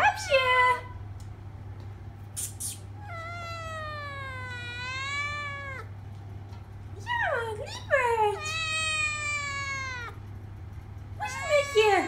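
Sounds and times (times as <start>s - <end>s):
kitten meowing: 3.0s - 5.9s, 8.4s - 10.2s.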